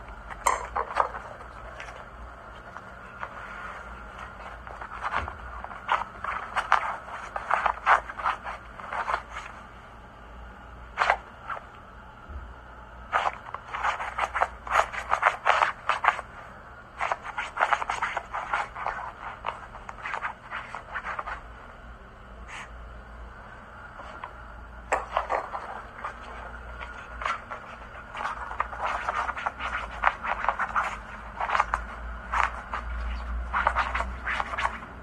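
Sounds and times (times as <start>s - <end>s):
dog claws scratching on fabric: 0.6s - 9.6s, 13.1s - 16.2s, 17.0s - 21.4s, 24.9s - 34.9s.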